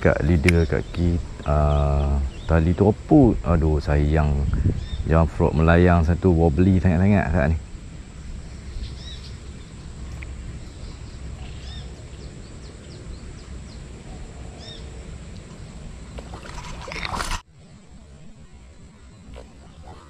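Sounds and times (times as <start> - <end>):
bird chirping: 0.0 - 3.0, 4.2 - 5.2, 8.2 - 15.1
steady low rumble: 0.0 - 16.2.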